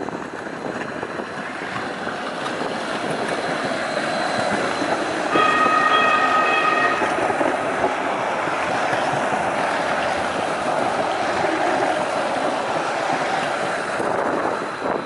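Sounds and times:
tram wheels on rails: 0:00.0 - 0:15.0
high-pitched tone: 0:04.6 - 0:08.5.

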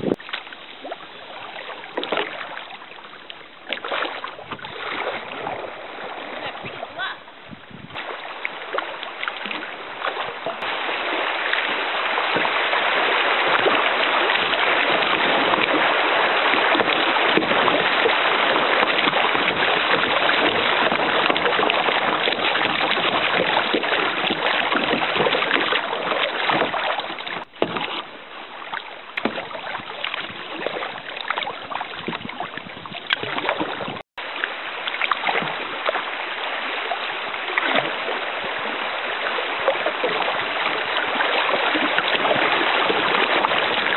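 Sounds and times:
river water rushing: 0:00.0 - 0:32.0, 0:33.0 - 0:43.9.

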